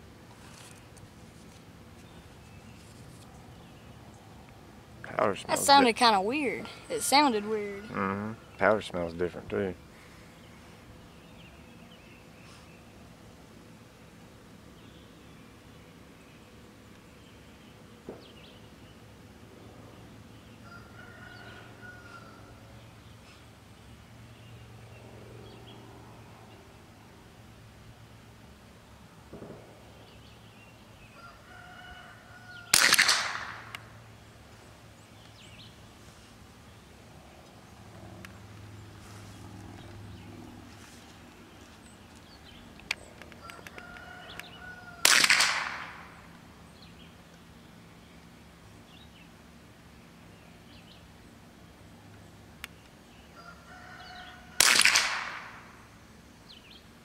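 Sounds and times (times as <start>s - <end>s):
birds chirping: 0.4s - 32.7s, 33.6s - 45.0s
rifle shot: 29.3s - 29.7s, 32.7s - 33.8s, 45.0s - 46.1s, 54.6s - 55.6s.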